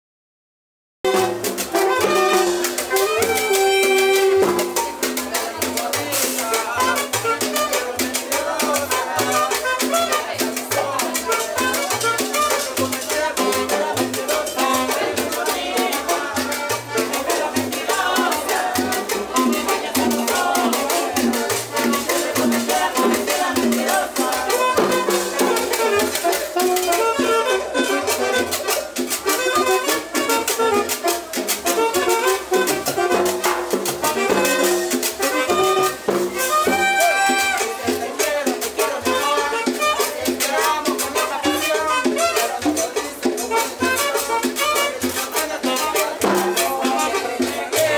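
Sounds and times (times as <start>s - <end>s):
conga drum: 1.0s - 47.9s
cumbia band playing: 1.0s - 47.9s
horn: 1.0s - 47.9s.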